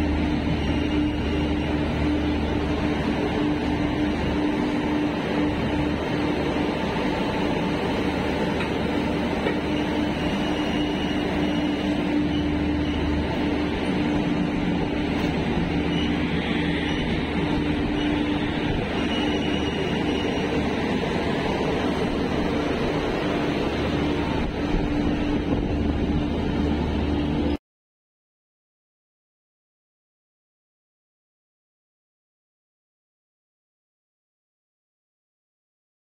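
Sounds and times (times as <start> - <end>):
electric locomotive whirring hum: 0.0 - 27.6.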